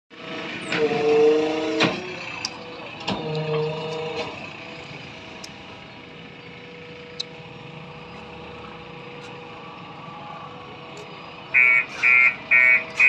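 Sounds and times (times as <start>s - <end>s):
diesel engine whining: 0.1s - 13.0s.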